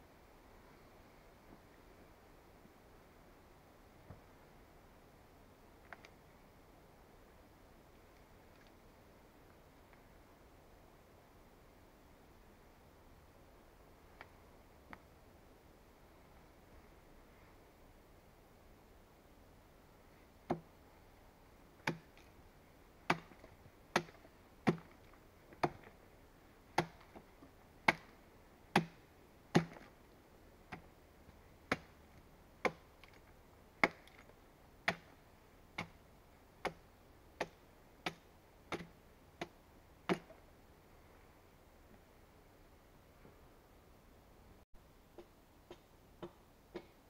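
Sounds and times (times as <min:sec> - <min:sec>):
axe chopping wood: 0:20.5 - 0:20.7, 0:21.8 - 0:22.3, 0:23.1 - 0:25.9, 0:26.8 - 0:27.2, 0:27.8 - 0:30.0, 0:31.7 - 0:32.0, 0:32.6 - 0:33.2, 0:33.8 - 0:35.2, 0:35.8 - 0:36.0, 0:36.6 - 0:36.8, 0:37.4 - 0:40.3, 0:45.7 - 0:47.0.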